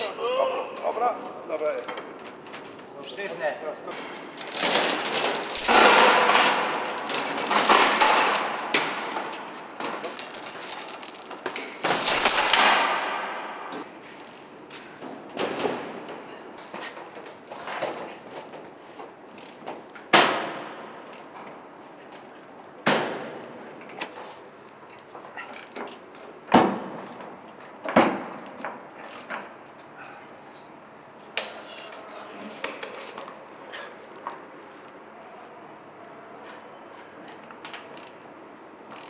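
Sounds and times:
steel chains rattling and clanking: 3.9 - 14.7, 17.0 - 19.6.

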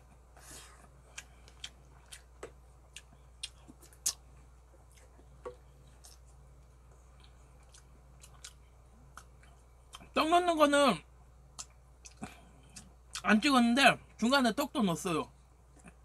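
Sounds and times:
person chewing food: 0.0 - 10.2, 11.5 - 13.3
low steady hum: 0.0 - 16.0.

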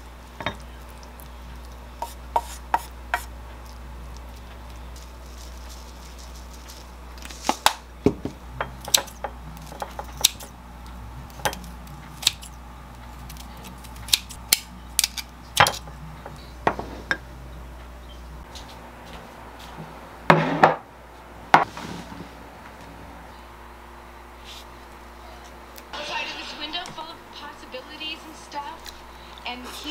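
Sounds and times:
scissors snipping: 13.2 - 15.8.

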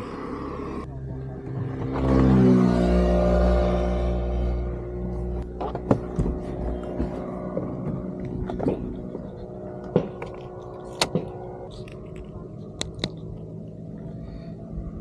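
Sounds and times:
steady low hum: 0.0 - 15.0
sharp crunches and clicks: 8.2 - 13.7.

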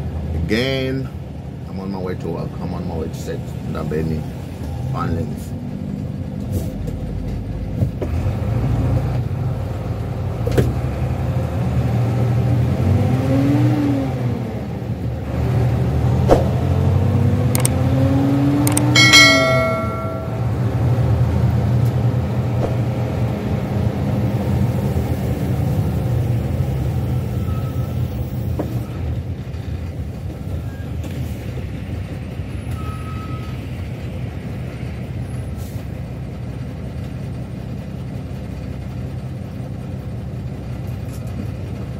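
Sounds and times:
vehicle engine hum from cab: 0.0 - 41.9
short ringing tone: 18.7 - 20.6.

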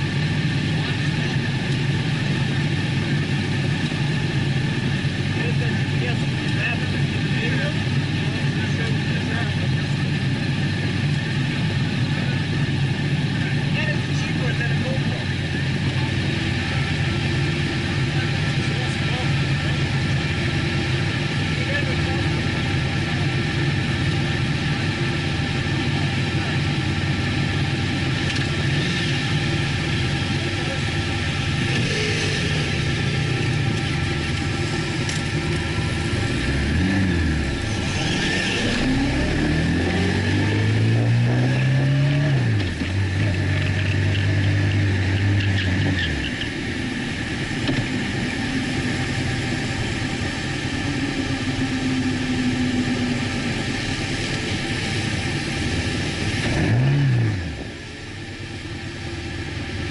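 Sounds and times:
motorcycle engines revving: 0.0 - 59.9.

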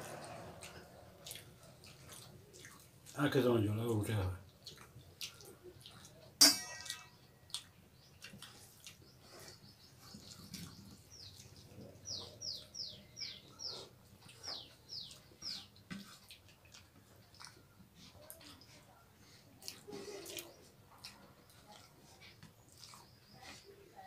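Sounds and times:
sharp clink: 6.4 - 7.2
bird chirping: 6.8 - 15.8
fingers mixing rice on steel plates: 13.6 - 24.0.

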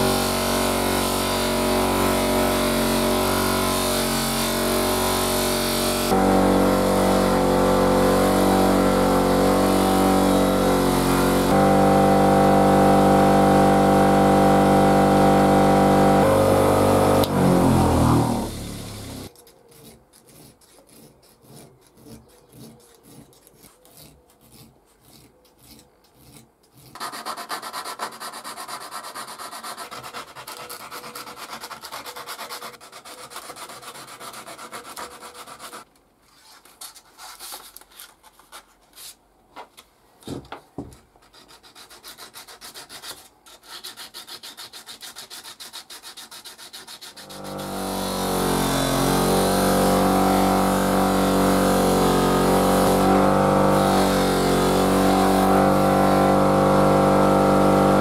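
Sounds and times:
buffing wheel motor humming: 0.0 - 19.3, 47.2 - 58.0
sandpaper rubbing on steel: 0.0 - 35.9, 41.2 - 58.0.

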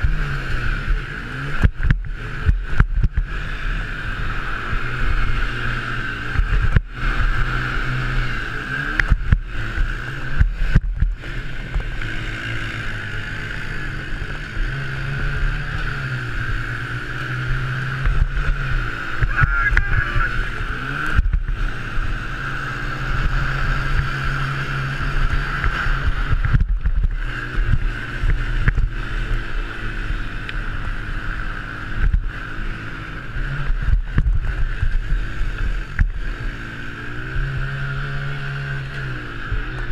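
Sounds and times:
quad engine racing: 0.0 - 39.9
other quads nearby: 19.1 - 21.9.

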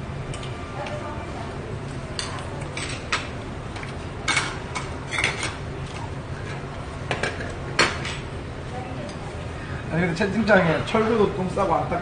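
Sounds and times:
low room hum: 0.0 - 12.0
utensils clinking against bowls: 2.2 - 5.6.

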